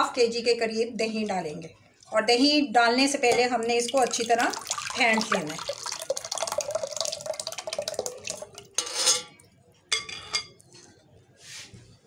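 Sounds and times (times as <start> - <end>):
liquid pouring: 3.7 - 8.9
spoon scraping glass bowl: 8.8 - 9.4.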